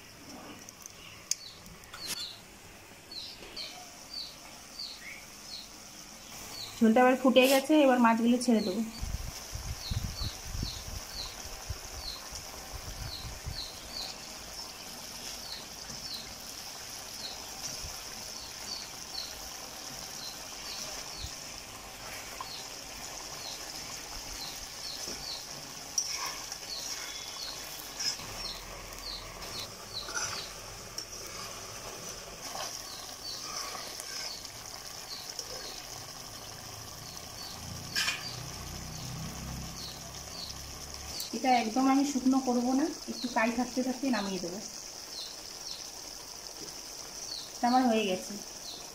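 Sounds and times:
curry simmering and bubbling: 0:06.2 - 0:48.9
metal spatula scraping a pan: 0:26.0 - 0:28.6, 0:29.5 - 0:34.4, 0:37.9 - 0:38.4.

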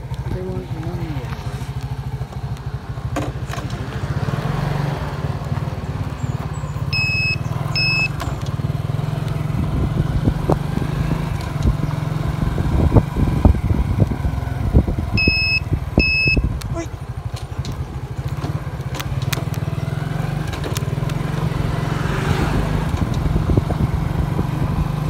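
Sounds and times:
motorcycle engine running: 0:00.0 - 0:25.0
road and wind noise: 0:00.0 - 0:25.0
sharp knocks and rattles: 0:02.2 - 0:04.1
short high electronic beeps: 0:07.0 - 0:08.1, 0:15.2 - 0:16.4.

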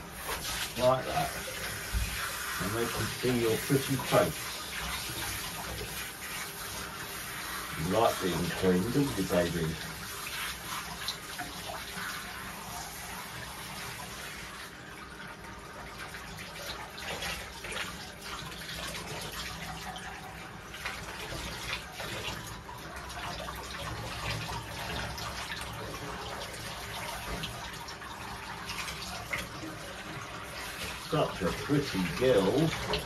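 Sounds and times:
shower head spraying water: 0:00.0 - 0:14.7, 0:28.5 - 0:33.0
water splashing into bathtub: 0:00.0 - 0:33.0.

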